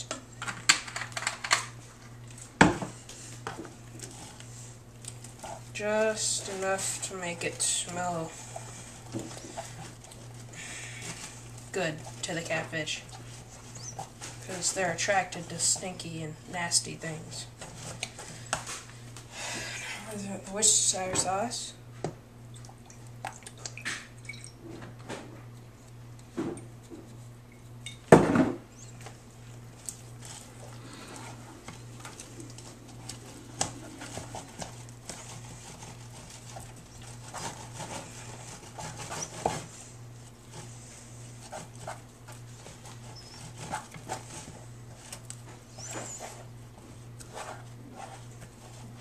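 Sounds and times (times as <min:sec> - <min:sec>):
steady low hum: 0:00.0 - 0:49.0
spatula stirring dough in tub: 0:02.9 - 0:19.1, 0:28.9 - 0:49.0.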